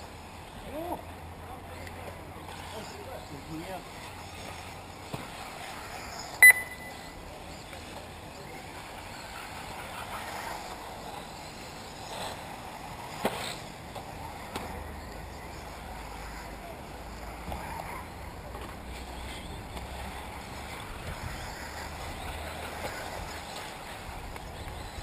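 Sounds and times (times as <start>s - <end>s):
low background noise: 0.0s - 25.0s
short high electronic beep: 6.4s - 7.1s.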